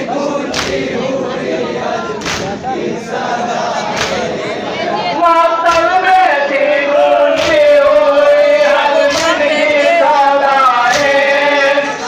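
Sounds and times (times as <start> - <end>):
crowd of men chanting: 0.0 - 12.0.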